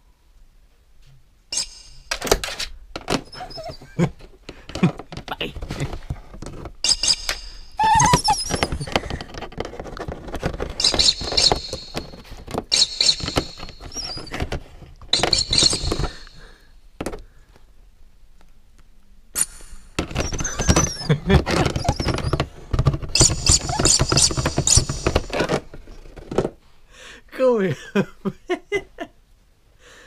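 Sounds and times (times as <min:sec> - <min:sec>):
high squeaks: 0:01.5 - 0:02.2, 0:03.2 - 0:03.9, 0:06.8 - 0:09.1, 0:10.8 - 0:14.5, 0:15.1 - 0:16.6, 0:19.4 - 0:26.0
dog teeth scraping plastic: 0:07.8 - 0:16.2, 0:20.0 - 0:26.5.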